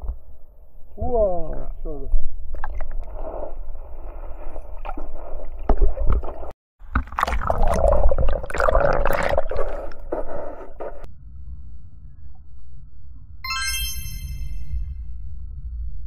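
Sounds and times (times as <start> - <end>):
underwater gurgling and sloshing: 2.1 - 11.1.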